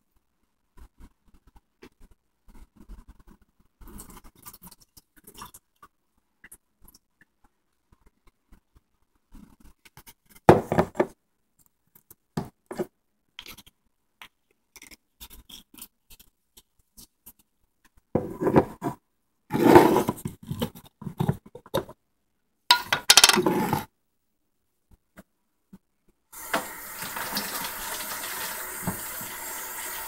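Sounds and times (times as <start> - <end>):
dishes and utensils clicking: 22.7 - 23.4.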